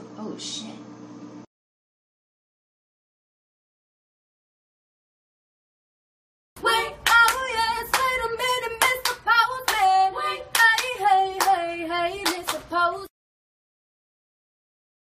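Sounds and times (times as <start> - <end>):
women singing a cappella: 6.6 - 13.1
sharp hand claps: 7.0 - 8.2, 8.8 - 9.9, 10.5 - 11.6, 12.2 - 12.7.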